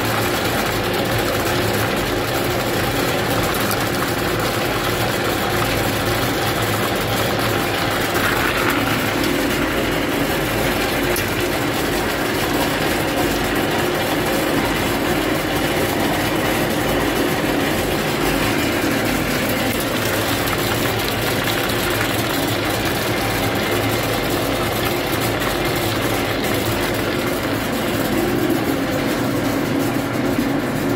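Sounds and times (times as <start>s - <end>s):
sorting machine running: 0.0s - 30.9s
peanuts rattling down chutes: 18.6s - 28.6s.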